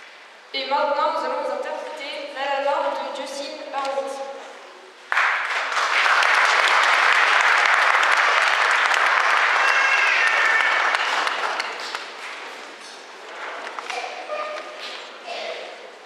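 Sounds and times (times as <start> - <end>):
audience applauding: 5.1 - 12.7.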